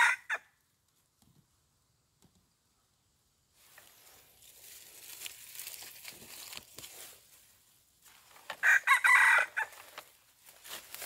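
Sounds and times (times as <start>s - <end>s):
rooster crowing: 0.0s - 0.4s, 8.6s - 9.8s
rustling in dry leaves: 3.5s - 11.0s.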